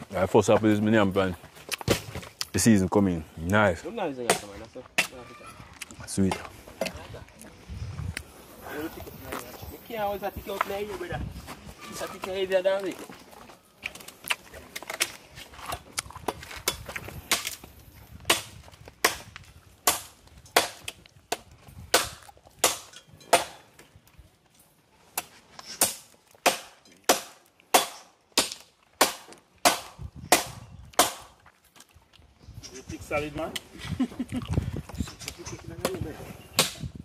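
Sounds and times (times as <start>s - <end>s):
wood chopping strikes: 1.7s - 2.3s, 4.2s - 5.2s, 15.7s - 23.8s, 25.1s - 31.4s, 35.8s - 37.0s.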